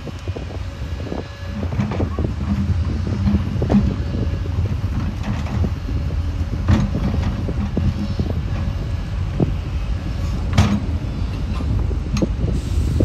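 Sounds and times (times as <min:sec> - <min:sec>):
diesel engine rumbling: 0:00.0 - 0:13.0
steel tracks clanking: 0:00.0 - 0:13.0.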